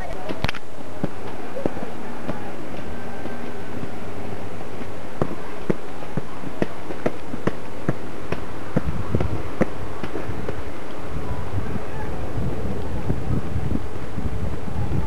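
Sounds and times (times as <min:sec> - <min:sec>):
footsteps climbing outdoor steps: 0:00.0 - 0:11.1
steady hiss: 0:00.0 - 0:15.0.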